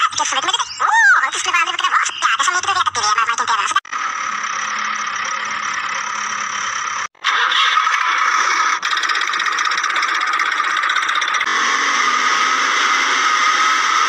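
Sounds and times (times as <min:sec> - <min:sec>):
toy engine mechanical whirring: 0:01.7 - 0:11.5.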